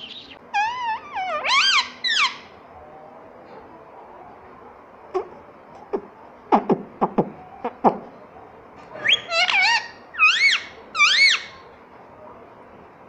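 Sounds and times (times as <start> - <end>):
parakeet whistled calls: 0.0 - 2.5, 9.0 - 11.6.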